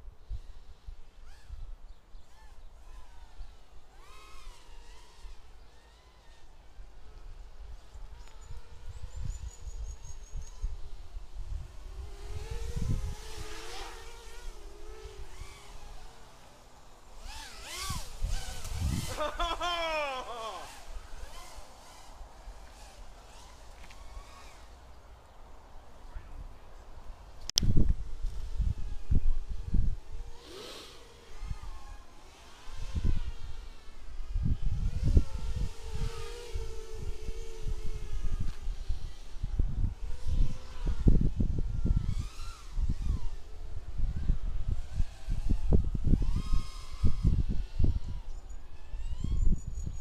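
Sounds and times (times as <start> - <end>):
drone motors buzzing: 0.2 - 25.1, 27.4 - 50.0.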